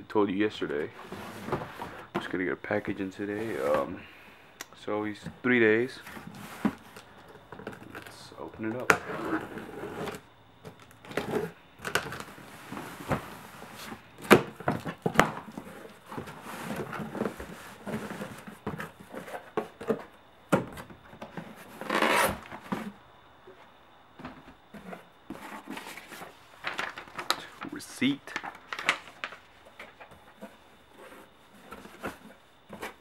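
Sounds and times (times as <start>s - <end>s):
paper and tape rustling: 24.8s - 33.0s.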